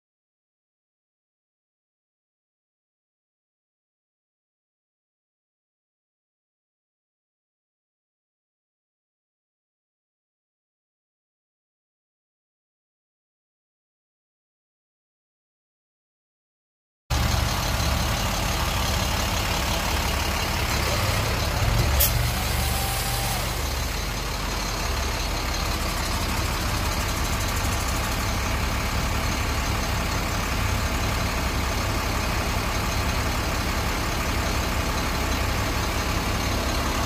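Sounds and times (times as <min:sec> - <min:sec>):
truck engine idling: 0:17.1 - 0:37.0.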